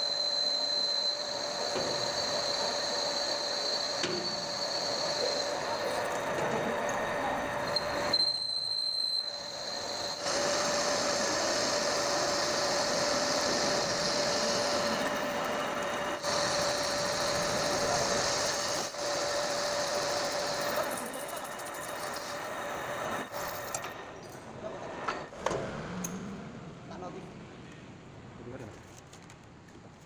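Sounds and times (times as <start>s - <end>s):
lathe cutting metal with whine: 0.0s - 24.0s.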